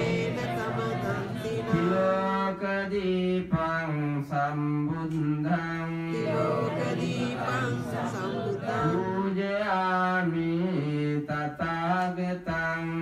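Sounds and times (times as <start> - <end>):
man chanting melodically: 0.0 - 13.0.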